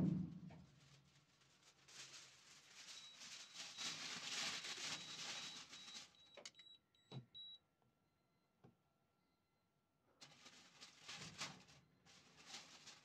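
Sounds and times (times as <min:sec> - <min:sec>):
aluminium foil crinkling: 0:00.5 - 0:06.2, 0:10.2 - 0:13.0.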